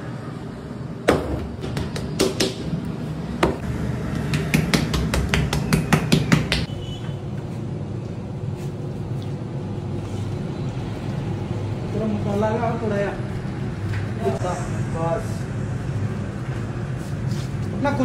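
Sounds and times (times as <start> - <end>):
sharp knocks from food preparation: 1.1 - 2.7.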